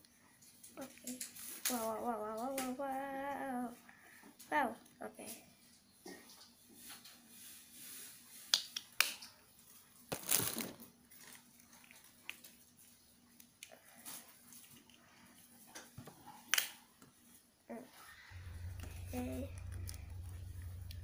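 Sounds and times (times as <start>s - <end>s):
plastic packaging crinkling: 10.1s - 12.5s.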